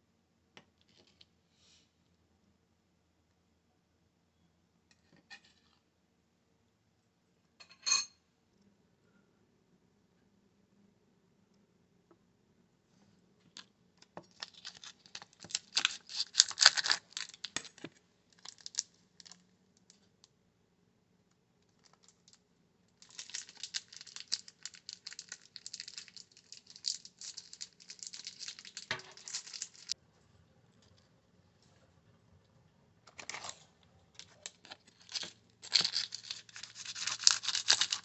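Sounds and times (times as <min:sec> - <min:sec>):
crinkly rattling handling noise: 0:14.3 - 0:19.4, 0:23.0 - 0:30.0, 0:34.2 - 0:38.0.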